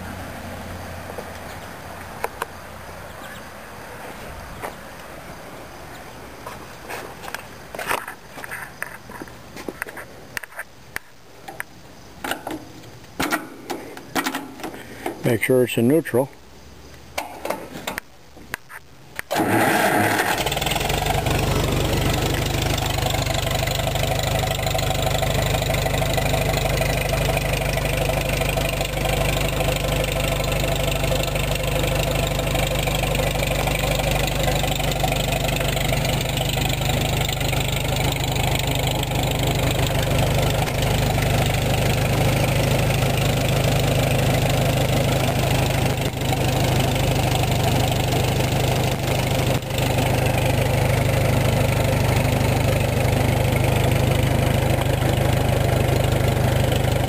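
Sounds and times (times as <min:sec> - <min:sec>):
tractor engine running: 0:19.2 - 0:57.0
starter motor cranking: 0:19.3 - 0:24.0.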